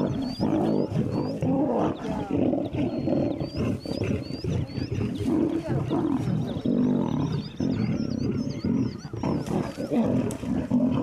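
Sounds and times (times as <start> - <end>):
lions growling: 0.0 - 11.0
high bird chirps: 6.3 - 10.0.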